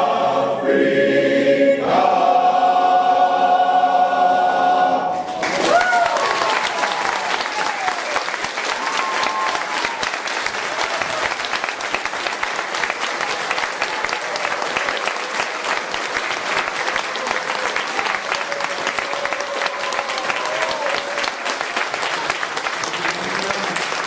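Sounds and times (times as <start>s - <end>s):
audience applauding: 5.3s - 24.0s.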